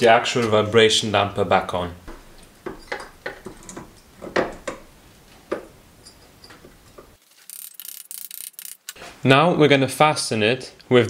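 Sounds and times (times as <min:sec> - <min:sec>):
light metallic clicks and knocks: 0:02.0 - 0:04.9.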